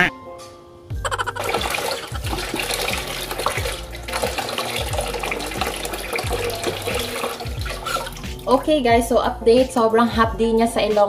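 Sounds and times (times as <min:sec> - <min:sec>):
tap water running and splashing: 0:01.3 - 0:08.8.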